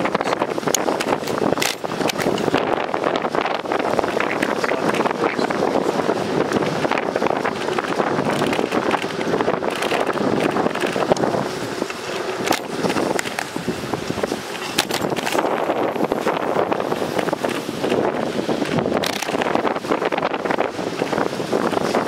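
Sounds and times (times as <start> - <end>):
tyres rolling on pavement: 0.0 - 22.0
wind buffeting microphone: 0.0 - 22.0
small rattles and clicks: 0.1 - 2.7, 6.5 - 13.6, 14.2 - 15.7, 16.9 - 20.1.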